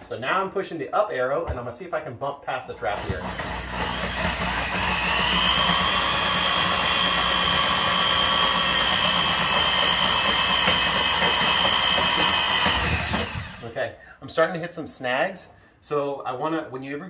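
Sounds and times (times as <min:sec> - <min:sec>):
drain snake motor whining: 0:03.0 - 0:13.6.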